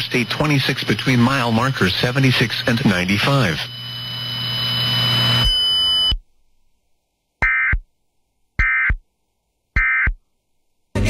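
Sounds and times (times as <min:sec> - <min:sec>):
two-tone digital data bursts: 0:07.4 - 0:07.8, 0:08.6 - 0:09.0, 0:09.8 - 0:10.2.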